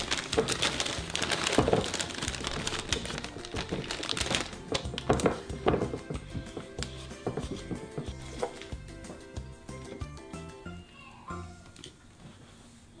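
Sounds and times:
plastic bag rustling: 0.0 - 8.7
background music: 0.0 - 12.4.

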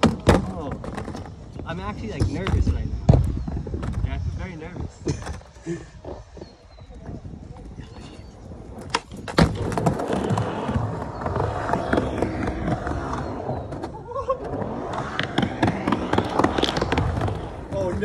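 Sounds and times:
skateboard wheels rolling on wood: 0.0 - 18.0
skateboard clacks: 14.6 - 18.0.

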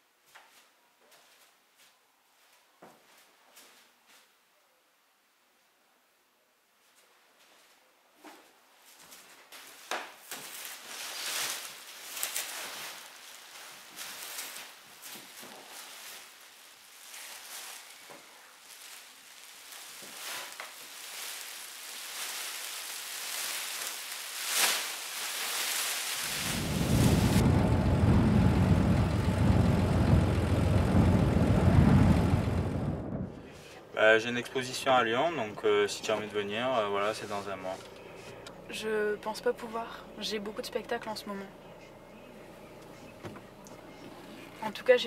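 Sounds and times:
plastic sheeting crinkling: 8.8 - 27.4
loud low rumble: 26.2 - 33.7.

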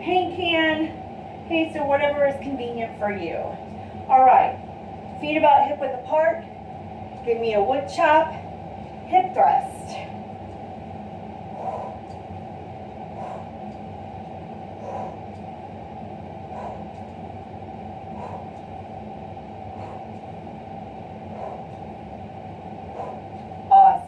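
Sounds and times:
steady low hum: 0.0 - 24.0
soft puffs of breath: 13.1 - 13.6.

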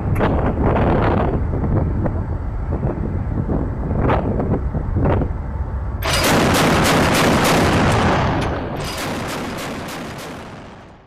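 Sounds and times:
chain gun firing in bursts: 6.0 - 11.0.

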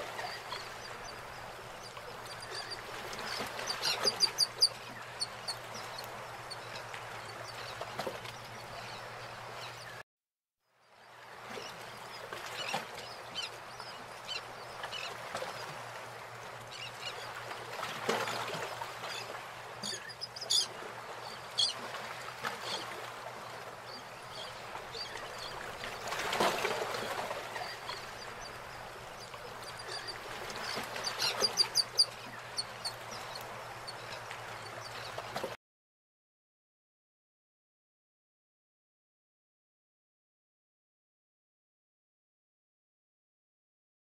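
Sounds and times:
birds chirping: 0.1 - 10.0.

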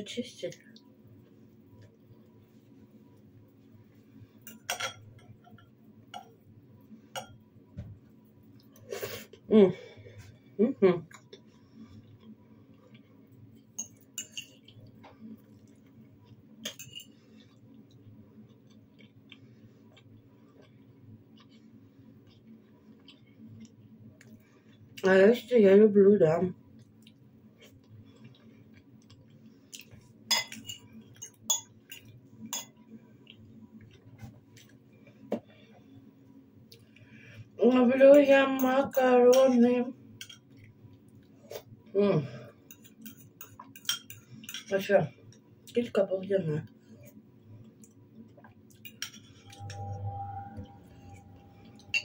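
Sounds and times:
metal fork clinking on ceramic bowl: 13.8 - 14.6, 16.6 - 17.1.

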